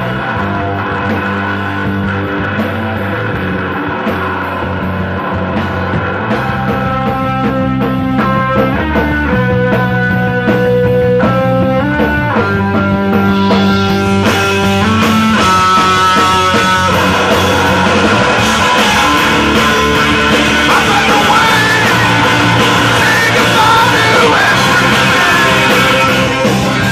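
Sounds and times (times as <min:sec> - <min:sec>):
live rock band playing: 0:00.0 - 0:26.9.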